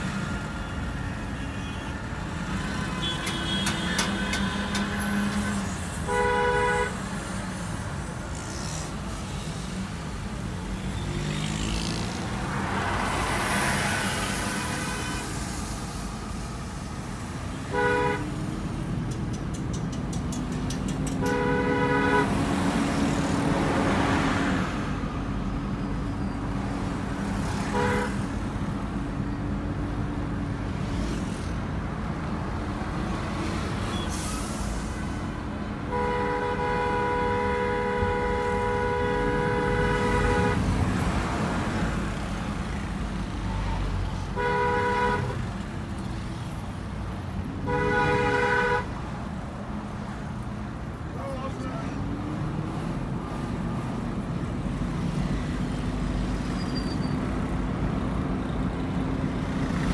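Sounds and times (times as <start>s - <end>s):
car engine and road noise: 0.0s - 59.9s
vehicle horn honking: 6.1s - 7.0s, 21.2s - 22.3s, 27.7s - 28.2s, 35.9s - 40.6s, 44.4s - 45.4s, 47.6s - 48.9s.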